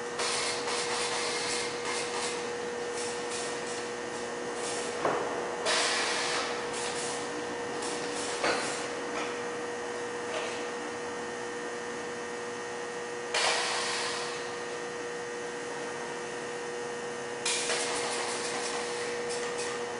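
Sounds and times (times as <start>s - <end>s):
machine humming: 0.0s - 19.9s
pneumatic gripper hissing: 0.2s - 3.9s, 4.5s - 9.0s, 13.3s - 14.6s, 17.4s - 19.8s.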